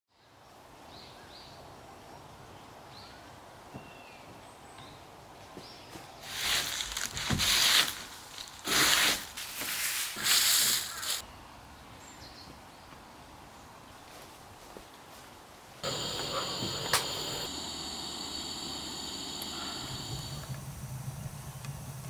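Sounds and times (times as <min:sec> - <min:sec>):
dry leaves rustling and crunching: 0:06.2 - 0:11.2
faint bird chirps: 0:15.8 - 0:20.4.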